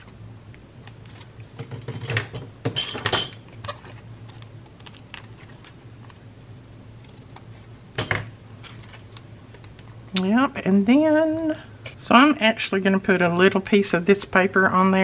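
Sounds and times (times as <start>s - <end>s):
paper rustling: 3.6s - 6.3s, 8.6s - 10.0s.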